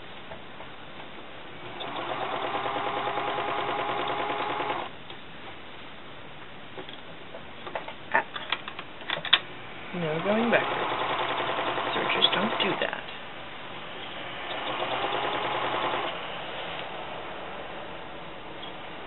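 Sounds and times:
serger sewing machine stitching: 0:01.6 - 0:04.9, 0:10.0 - 0:13.0, 0:14.5 - 0:16.2
sharp clicks and knocks: 0:06.8 - 0:09.5.

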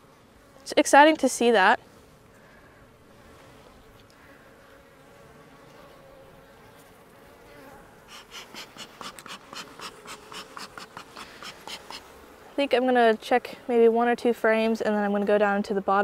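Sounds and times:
honey bees buzzing: 0:00.0 - 0:16.0
bee smoker bellows puffing: 0:00.9 - 0:13.7.

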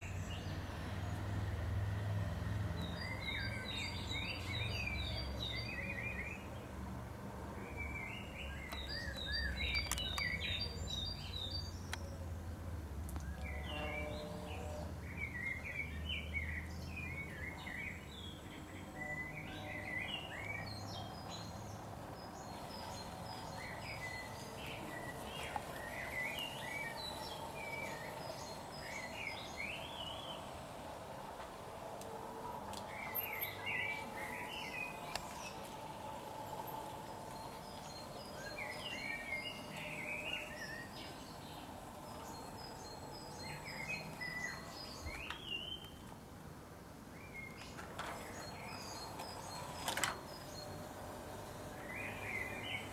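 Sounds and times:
songbirds chirping: 0:00.0 - 0:52.9.

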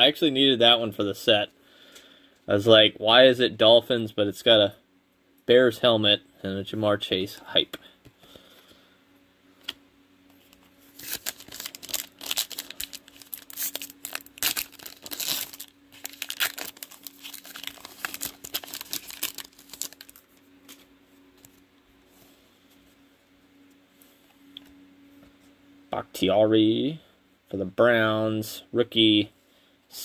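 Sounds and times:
wrapper tearing and crinkling: 0:10.9 - 0:20.9.

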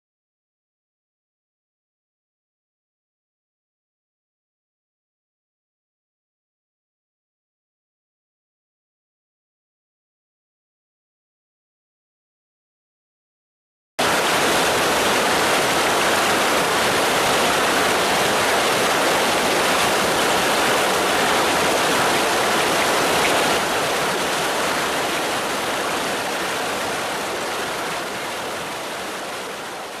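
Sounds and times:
stream rushing over rocks: 0:14.0 - 0:30.0.

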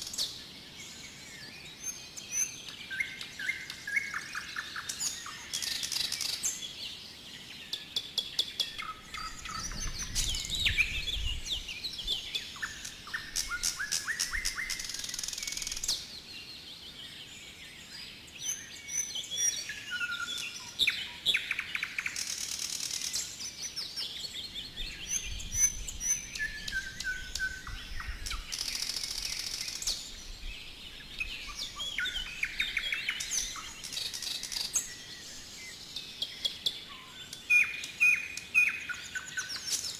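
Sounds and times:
songbirds singing and calling: 0:00.0 - 0:39.9.

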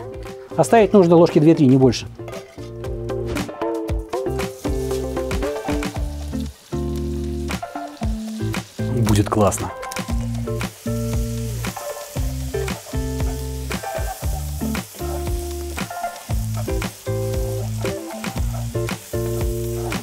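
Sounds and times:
background music with bass: 0:00.0 - 0:20.0
vegetables sizzling in a pot: 0:04.1 - 0:20.0.

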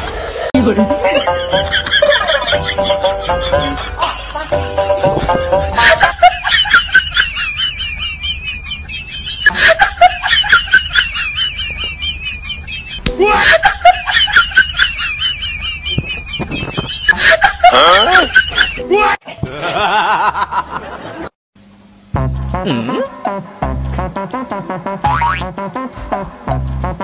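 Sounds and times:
high-pitched snickering laugh: 0:01.2 - 0:21.0.

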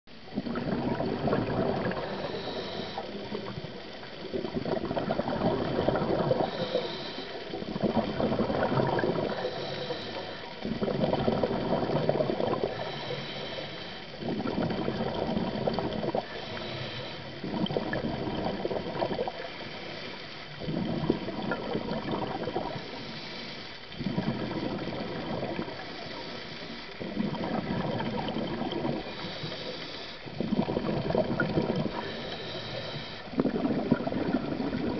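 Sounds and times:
exhaled bubbles underwater: 0:00.1 - 0:34.9
regulator inhale hiss: 0:01.7 - 0:04.2, 0:05.6 - 0:10.8, 0:11.6 - 0:14.4, 0:16.1 - 0:17.6, 0:19.4 - 0:20.5, 0:22.6 - 0:24.9, 0:25.6 - 0:27.2, 0:28.7 - 0:30.6, 0:31.7 - 0:33.7.

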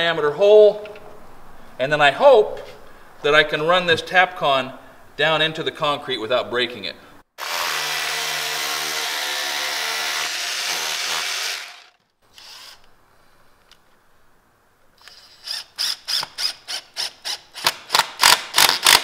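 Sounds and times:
rotary hammer drilling concrete: 0:07.4 - 0:12.8, 0:15.2 - 0:19.0.

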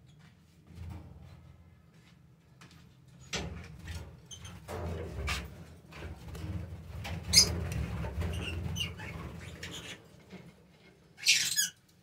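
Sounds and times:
birds chirping and squeaking: 0:07.2 - 0:10.4, 0:11.2 - 0:11.8.

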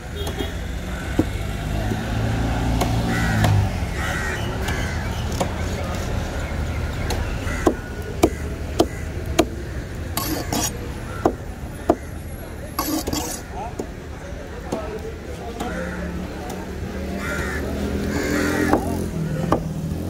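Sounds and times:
cleaver chopping on wooden board: 0:02.7 - 0:03.7, 0:07.0 - 0:12.1, 0:12.8 - 0:14.0, 0:18.2 - 0:19.8.

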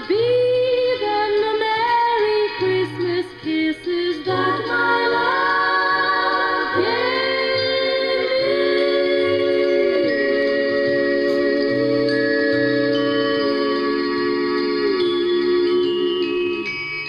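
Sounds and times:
woman singing: 0:00.0 - 0:11.8
musical accompaniment: 0:00.0 - 0:17.0
backing choir: 0:04.2 - 0:16.8.

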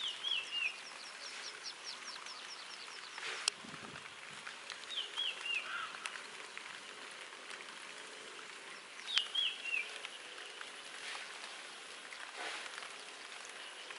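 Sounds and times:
bird chirping: 0:00.0 - 0:03.5, 0:04.9 - 0:07.0, 0:08.7 - 0:11.4
steady outdoor hiss: 0:00.0 - 0:13.9.

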